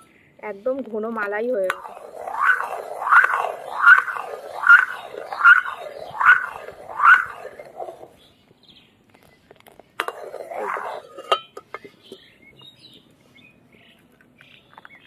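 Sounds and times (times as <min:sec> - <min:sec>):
birds chirping faintly: 0:00.0 - 0:15.0
metal ladle scraping a pan: 0:01.7 - 0:08.1, 0:10.0 - 0:12.2.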